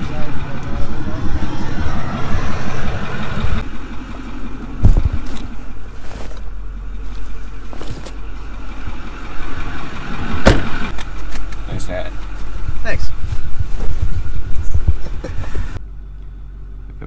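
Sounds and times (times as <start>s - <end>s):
vehicle engine idling: 0.0s - 17.0s
loud thump: 10.3s - 10.9s.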